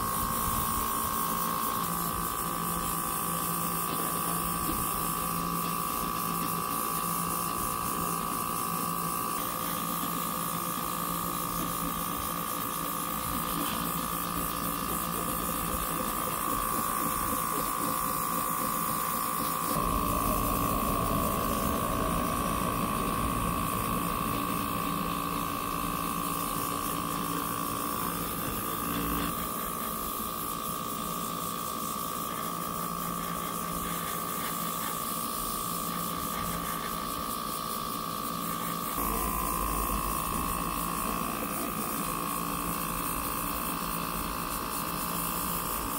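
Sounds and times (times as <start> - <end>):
compressor whining and humming: 0.0 - 45.9
airbrush spraying hiss: 7.6 - 34.4.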